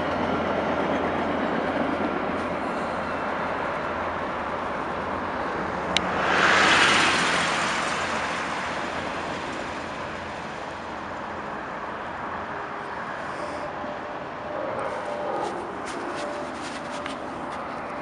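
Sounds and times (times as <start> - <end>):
road traffic noise: 0.0 - 18.0
train rolling with low hum: 0.0 - 18.0
vehicle swishing past: 5.3 - 11.6.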